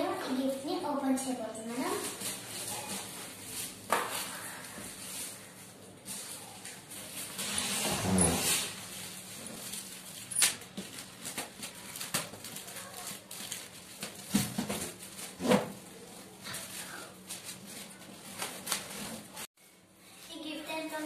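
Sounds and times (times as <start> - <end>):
plastic film crinkling and cracking: 8.9 - 15.4, 16.0 - 19.5.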